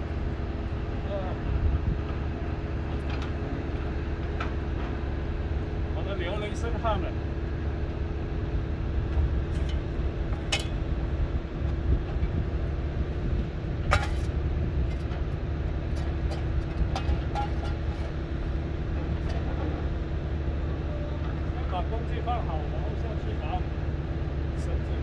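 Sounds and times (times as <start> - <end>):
wind rumbling on microphone: 0.0 - 5.9, 7.5 - 21.6.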